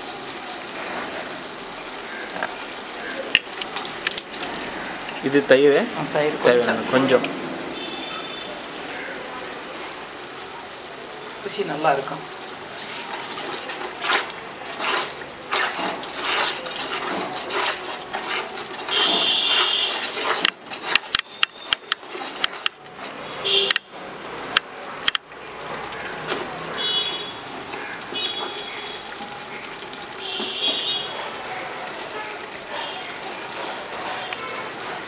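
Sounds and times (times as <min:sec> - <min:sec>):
spoon stirring in a metal pot: 0:12.8 - 0:23.2.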